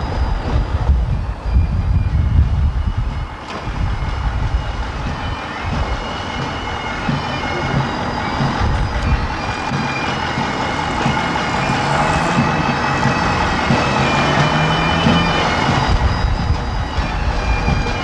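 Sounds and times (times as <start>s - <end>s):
bagpipes playing a march: 1.1s - 18.0s.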